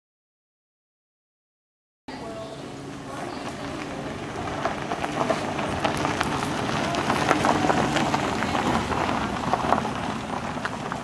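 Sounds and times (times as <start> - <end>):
tyres crunching on gravel: 3.0 - 11.0.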